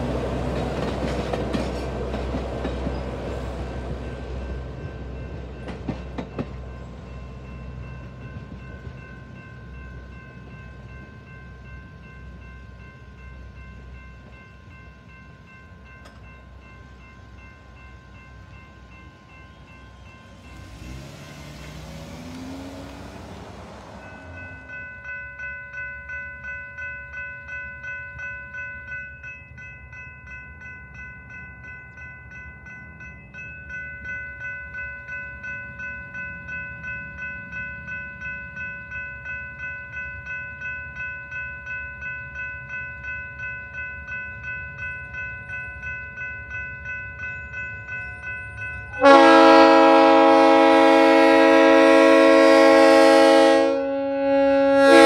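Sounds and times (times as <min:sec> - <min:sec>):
crossing warning bell ringing: 0:00.0 - 0:55.0
vehicle passing: 0:19.9 - 0:24.8.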